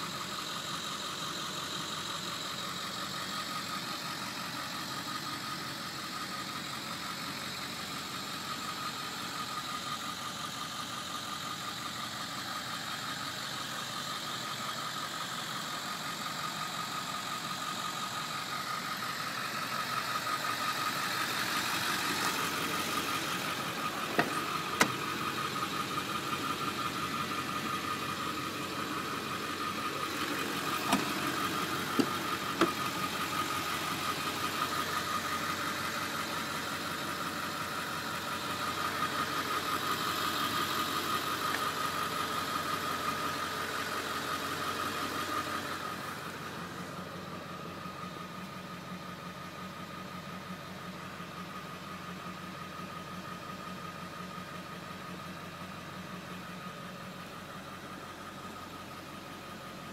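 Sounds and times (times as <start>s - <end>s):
engine idling with high whine: 0.0s - 59.9s.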